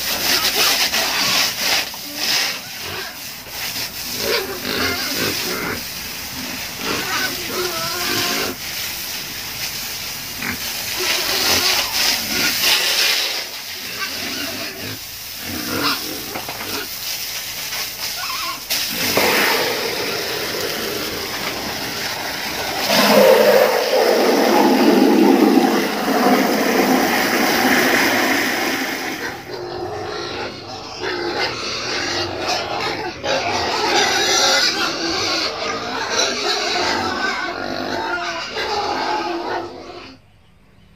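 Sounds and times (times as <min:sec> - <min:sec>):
pigs vocalizing: 0:00.0 - 0:08.6, 0:10.4 - 0:17.0, 0:18.1 - 0:40.2
hose spraying water: 0:00.0 - 0:29.6.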